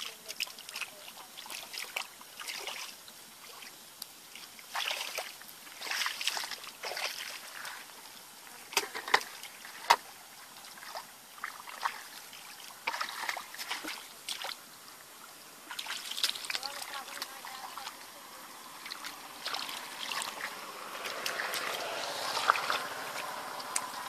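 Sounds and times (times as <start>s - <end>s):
hands splashing in muddy water: 12.8s - 14.6s, 18.8s - 24.0s.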